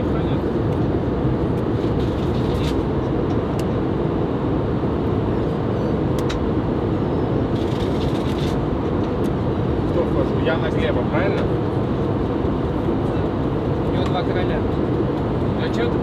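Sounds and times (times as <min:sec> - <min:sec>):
airliner cabin rush: 0:01.6 - 0:02.9, 0:07.5 - 0:09.1.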